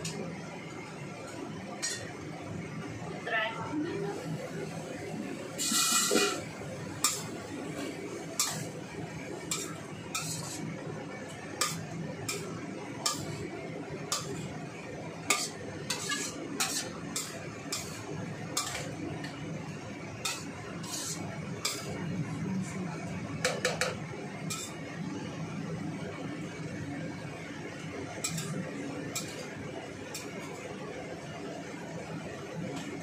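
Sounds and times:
spatula scraping and clinking on wok: 0:05.6 - 0:07.3, 0:08.4 - 0:08.8, 0:09.4 - 0:10.7, 0:11.6 - 0:13.4, 0:14.1 - 0:14.4, 0:15.2 - 0:19.0, 0:20.2 - 0:22.0, 0:24.5 - 0:24.8, 0:28.2 - 0:28.6, 0:29.2 - 0:29.4.

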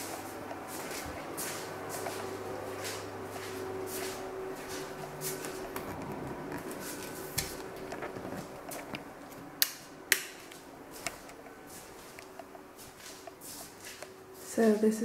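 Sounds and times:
steady low hum: 0:00.0 - 0:15.0
handling noise: 0:03.5 - 0:14.2.

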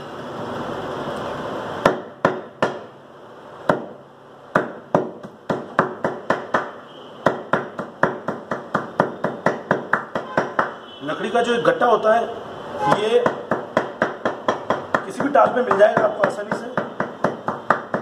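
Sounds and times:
meat cleaver chopping on wood: 0:01.8 - 0:02.9, 0:03.6 - 0:10.8, 0:13.2 - 0:18.0.

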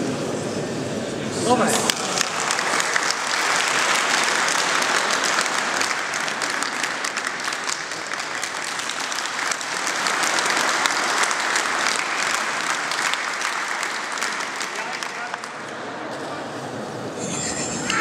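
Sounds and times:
crowd applauding: 0:01.7 - 0:16.0.

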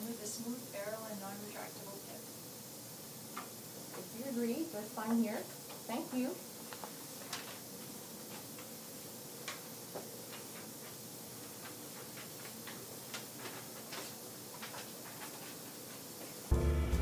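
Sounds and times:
room hiss: 0:00.0 - 0:17.0
swing jazz music: 0:16.5 - 0:17.0.

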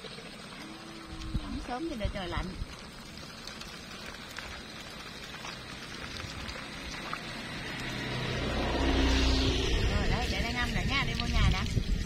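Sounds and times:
tap water running: 0:00.0 - 0:12.0.

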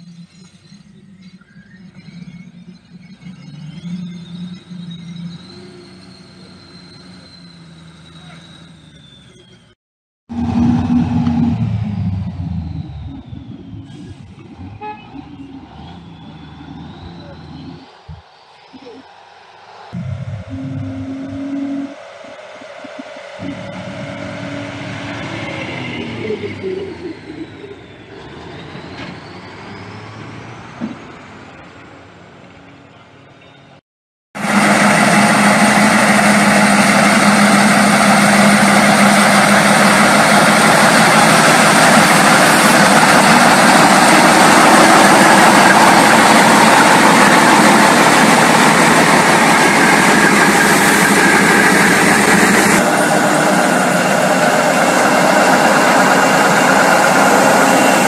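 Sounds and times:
heavy truck diesel engine running: 0:10.3 - 0:30.0, 0:34.4 - 0:58.0.

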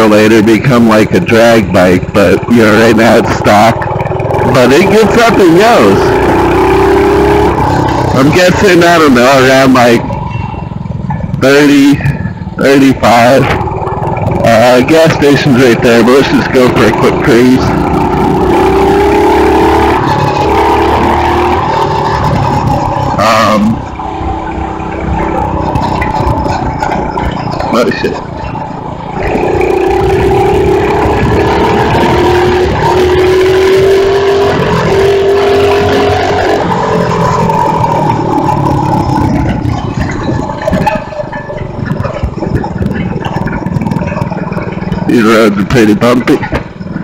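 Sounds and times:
mini bike engine running: 0:12.4 - 0:47.0
wind rushing over microphone: 0:16.9 - 0:47.0
rattles and knocks: 0:23.8 - 0:47.0.

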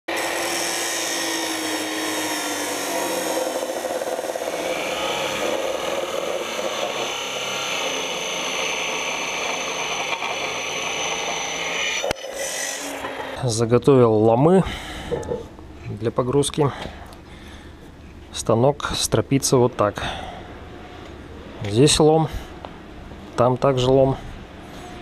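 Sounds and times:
saw motor whine: 0:00.1 - 0:13.4
abrasive saw cutting metal: 0:00.1 - 0:13.5.

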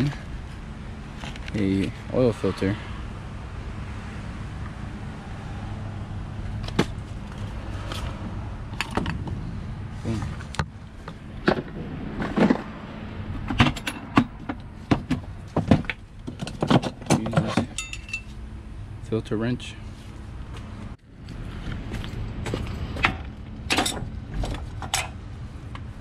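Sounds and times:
steady low hum: 0:00.0 - 0:17.0
hand tools clicking and clinking: 0:16.4 - 0:18.3.

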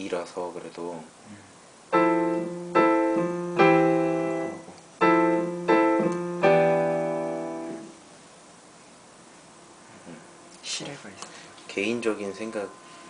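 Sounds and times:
piano chords ringing: 0:01.9 - 0:08.0, 0:11.7 - 0:13.0.

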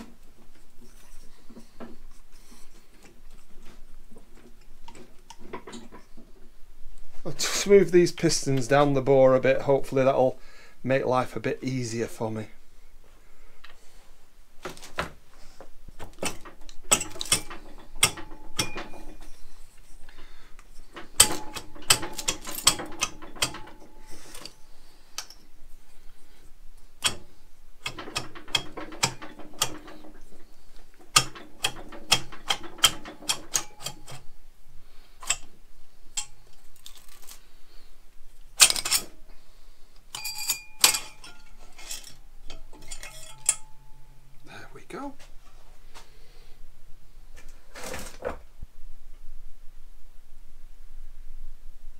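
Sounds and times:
metal clinking and rattling: 0:16.0 - 0:20.1, 0:20.7 - 0:25.5, 0:26.9 - 0:34.4, 0:38.5 - 0:39.2, 0:40.1 - 0:44.4.

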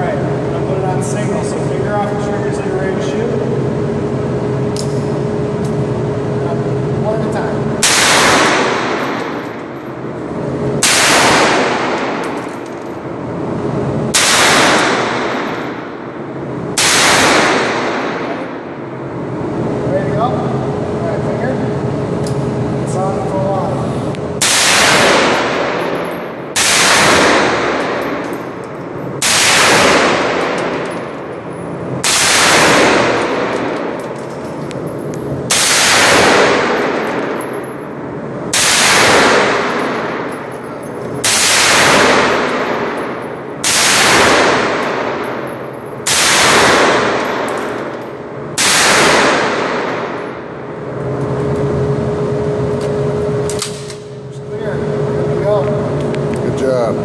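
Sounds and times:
gunshots echoing indoors: 0:07.8 - 0:19.2, 0:24.4 - 0:51.0.

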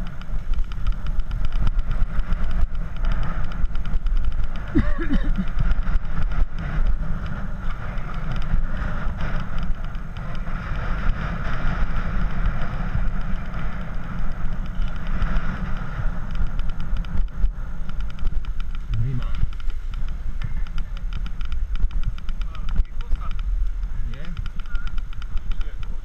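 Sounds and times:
bicycle road noise on paving: 0:00.0 - 0:26.0
wind rumble: 0:00.0 - 0:26.0.

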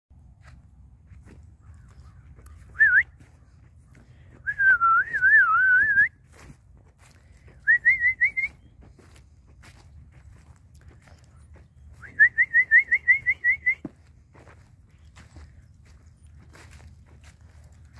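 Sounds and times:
person whistling: 0:02.8 - 0:03.1, 0:04.4 - 0:06.2, 0:07.6 - 0:08.6, 0:12.0 - 0:13.9.

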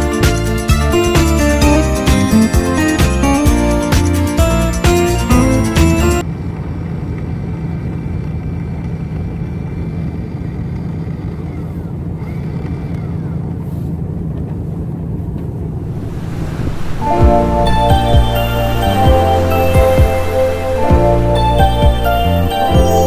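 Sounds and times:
windlass motor hum: 0:15.7 - 0:23.0.

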